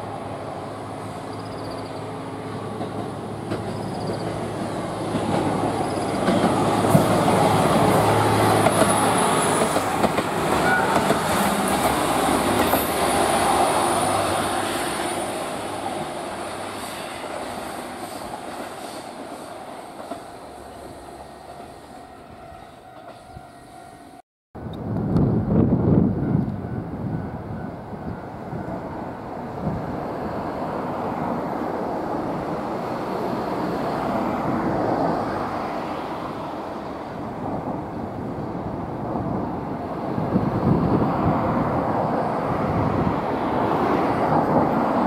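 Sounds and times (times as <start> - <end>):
railcar engine passing: 0.0 - 45.0
faint high wheel squeal: 10.5 - 11.2.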